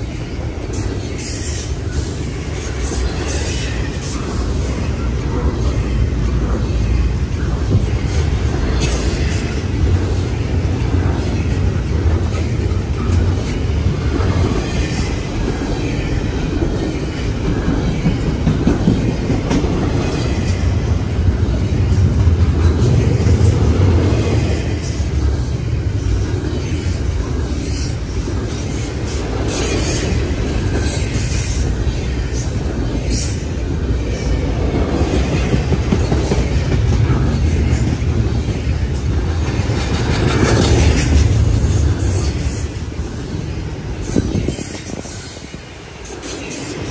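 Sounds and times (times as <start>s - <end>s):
clickety-clack over rail joints: 0.0s - 46.9s
steel wheels rumbling on rail: 0.0s - 46.9s.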